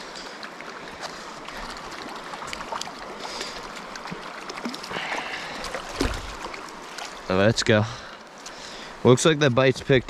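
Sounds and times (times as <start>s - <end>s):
stream running over rocks: 0.0s - 10.0s
light splashing: 1.0s - 7.3s.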